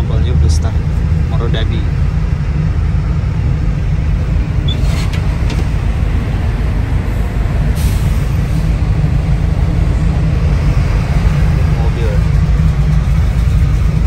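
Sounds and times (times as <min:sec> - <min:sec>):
diesel engines idling: 0:00.0 - 0:14.0
air brake hiss: 0:07.8 - 0:08.7.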